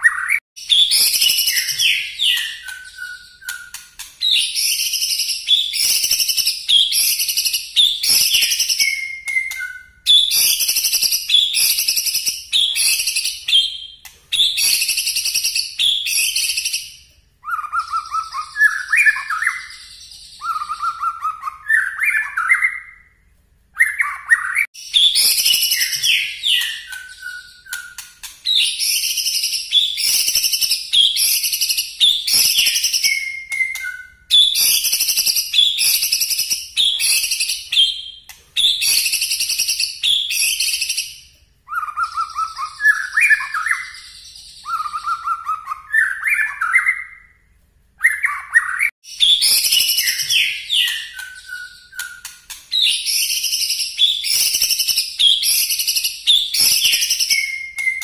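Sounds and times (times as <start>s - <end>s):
bird singing high repeated notes: 0.0s - 23.2s, 23.8s - 58.0s.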